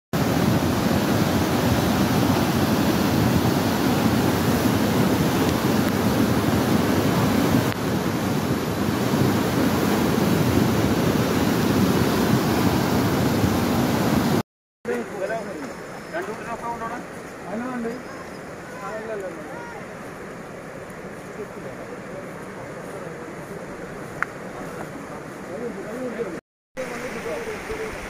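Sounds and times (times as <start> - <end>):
flooded river rushing: 0.2 - 28.0.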